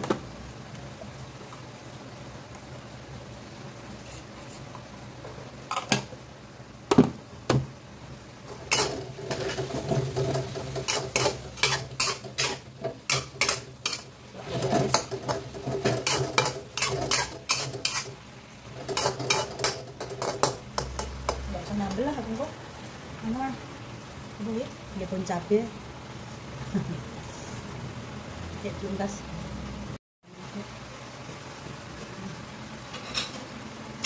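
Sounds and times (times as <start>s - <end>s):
greens frying hiss: 0.0s - 34.0s
metal spatula scraping a wok: 8.5s - 21.4s.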